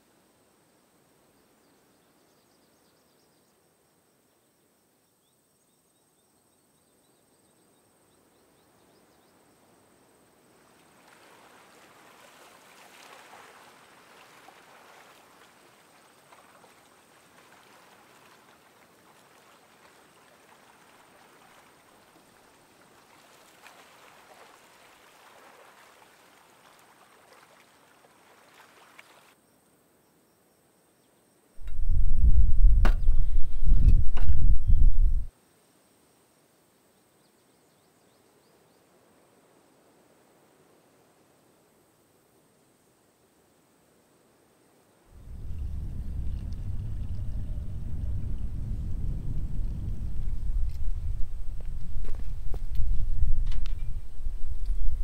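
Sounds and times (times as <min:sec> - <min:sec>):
faint outdoor rushing ambience: 0:31.6 - 0:35.3, 0:39.0 - 0:55.0.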